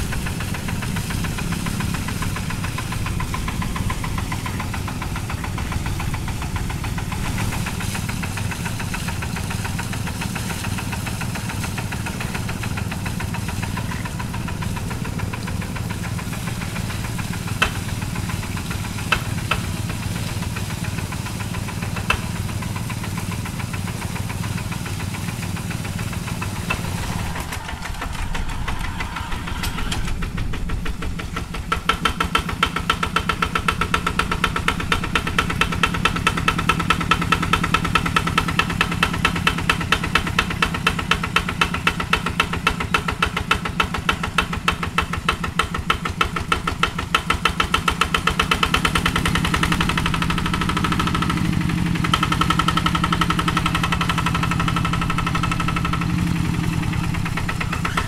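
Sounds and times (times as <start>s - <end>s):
diesel engine chugging: 0.0s - 58.0s.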